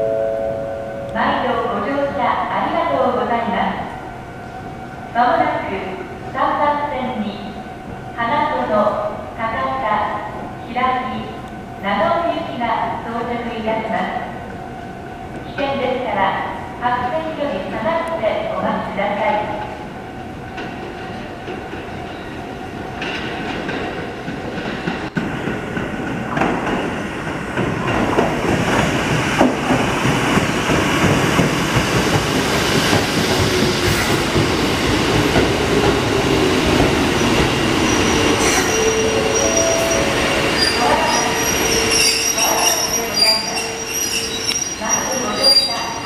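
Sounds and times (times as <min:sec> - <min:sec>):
train wheels rumbling and clattering: 0:20.4 - 0:46.0
high wheel squeals: 0:37.8 - 0:46.0.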